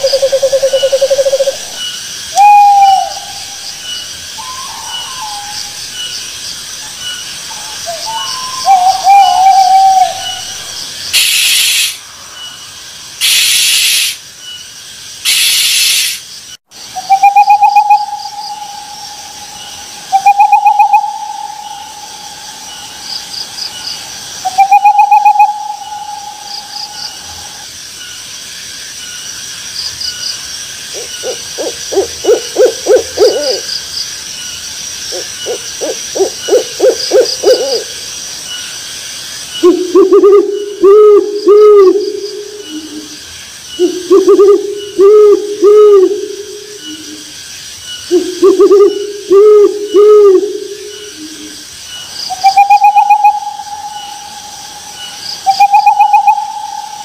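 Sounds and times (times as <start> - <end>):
owl whistled notes: 0.0 - 3.7, 4.4 - 5.8, 7.5 - 12.0, 13.2 - 14.2, 15.2 - 16.2, 17.0 - 22.9, 24.4 - 27.6, 35.1 - 37.9, 39.6 - 43.1, 43.7 - 47.3, 48.1 - 51.5, 52.3 - 57.0
owl pulsing hoots: 0.0 - 5.9, 6.8 - 12.0, 17.0 - 23.0, 24.4 - 27.6, 30.9 - 33.7, 35.1 - 38.0, 39.6 - 47.3, 48.1 - 51.6, 52.3 - 57.0
crickets chirping: 0.0 - 57.0
owl screeching: 15.2 - 16.2.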